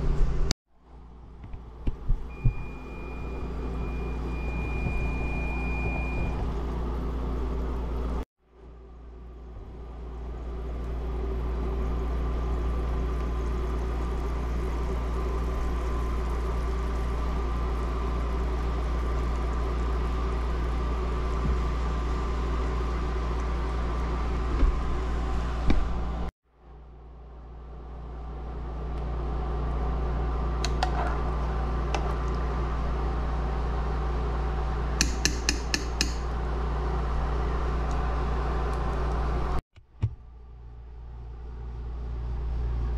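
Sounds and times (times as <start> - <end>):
cooktop fan hum: 0.0 - 42.9
water boiling in pot: 9.8 - 26.2.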